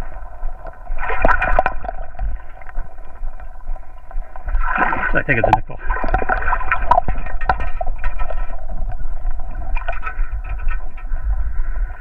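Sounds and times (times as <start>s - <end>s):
water sloshing and gurgling: 0.0s - 12.0s
scoop clicks and rattles: 6.0s - 8.7s.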